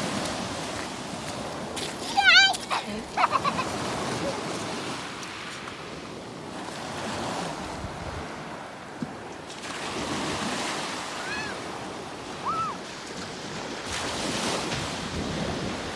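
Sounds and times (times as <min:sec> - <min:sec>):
small waves on a shingle beach: 0:00.0 - 0:15.9.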